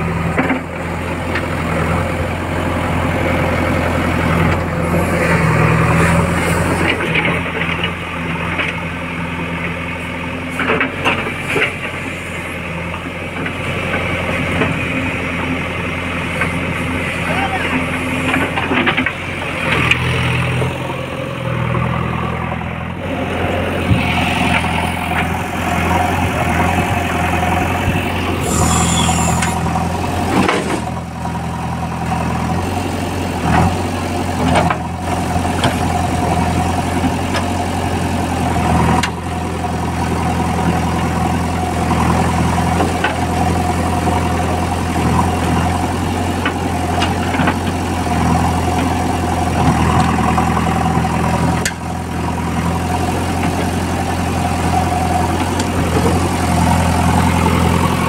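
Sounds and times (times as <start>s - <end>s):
diesel engine running: 0.0s - 58.0s
mid-pitched whine: 22.9s - 30.1s.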